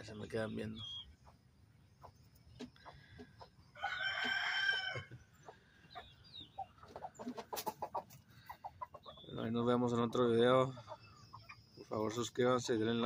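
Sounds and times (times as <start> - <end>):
chickens clucking: 0.0 - 13.0
rooster crowing: 3.8 - 5.2.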